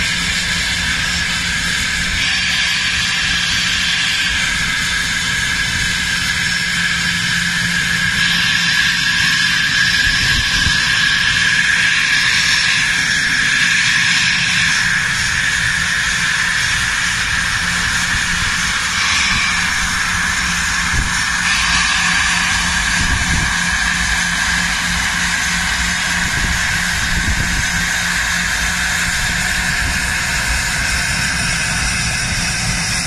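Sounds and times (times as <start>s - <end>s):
jet engines whining: 0.0s - 33.0s.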